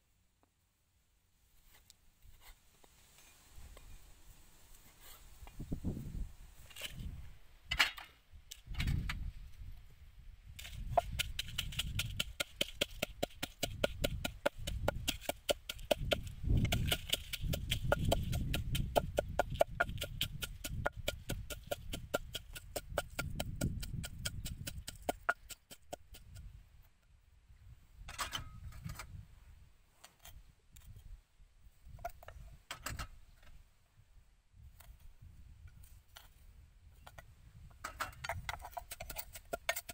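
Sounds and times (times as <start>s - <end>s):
pestle pounding in wooden mortar: 10.9s - 26.4s, 38.5s - 39.9s.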